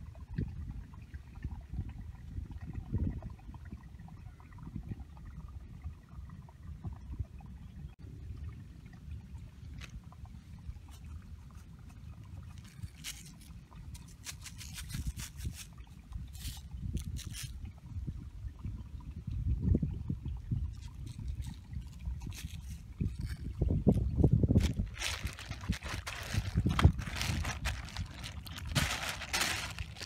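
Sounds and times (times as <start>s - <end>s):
wind buffeting microphone: 0.0s - 7.9s, 14.6s - 30.0s
plastic sheet crinkling: 24.6s - 30.0s.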